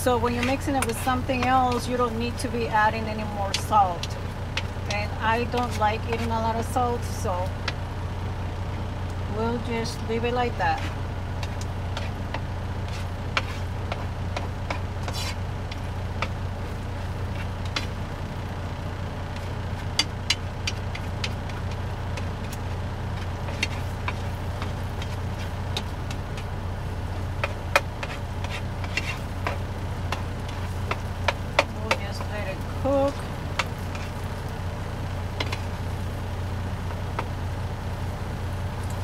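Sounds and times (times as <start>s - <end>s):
low truck engine hum: 0.0s - 39.0s
food sizzling in a skillet: 9.8s - 39.0s
utensil scraping and tapping pan: 10.7s - 16.5s, 17.2s - 18.0s, 19.3s - 26.5s, 27.3s - 34.3s, 35.3s - 35.8s.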